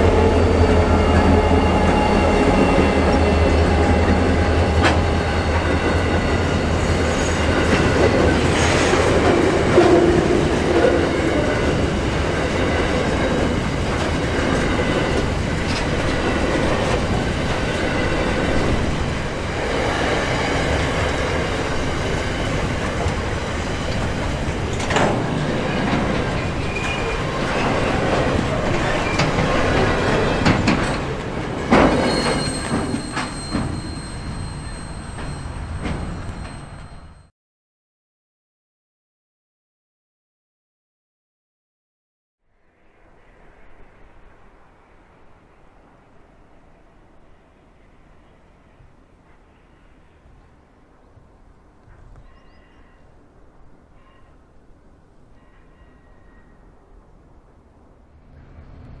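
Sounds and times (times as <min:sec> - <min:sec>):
diesel locomotive engine hum: 0:00.0 - 0:37.3
wagon wheels on rails: 0:04.8 - 0:37.2.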